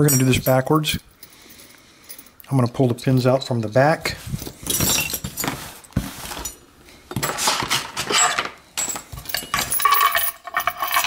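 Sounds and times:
rustling: 0:04.1 - 0:11.0
keys jingling on a ring: 0:08.8 - 0:11.0.

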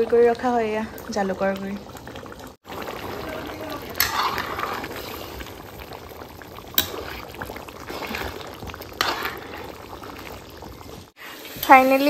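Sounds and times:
liquid simmering and sloshing: 0:00.0 - 0:11.9
ladle scraping pan: 0:03.8 - 0:05.4, 0:06.8 - 0:11.9.

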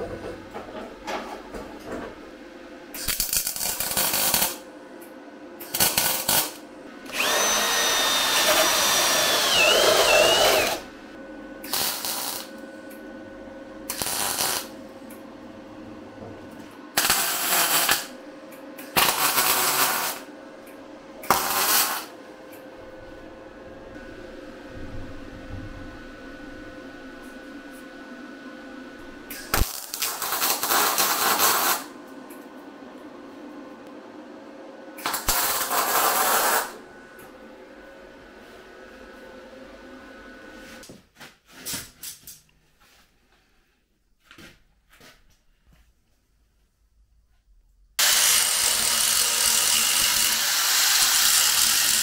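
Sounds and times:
power tool whining in bursts: 0:07.1 - 0:10.9.

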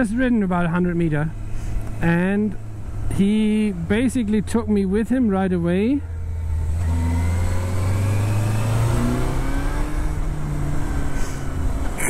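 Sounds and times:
motorcycle engine accelerating: 0:06.2 - 0:12.0.

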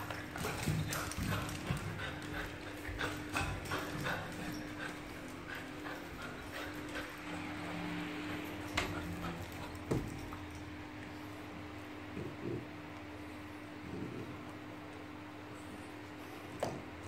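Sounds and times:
dog claws clicking on tiles: 0:00.0 - 0:07.2
steady low hum: 0:00.0 - 0:17.0.

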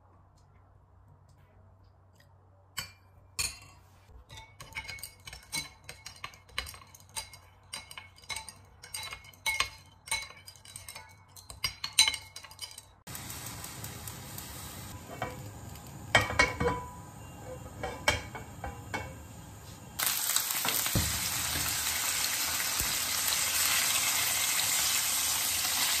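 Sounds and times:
metal spoon clinking in bowl: 0:02.8 - 0:13.0.

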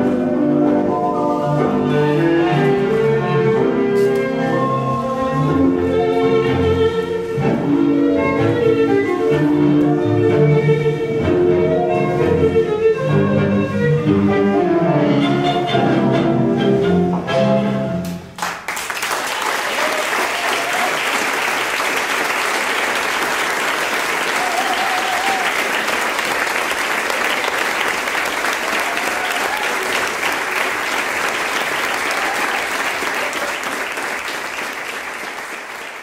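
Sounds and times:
audience applauding: 0:18.4 - 0:36.0.

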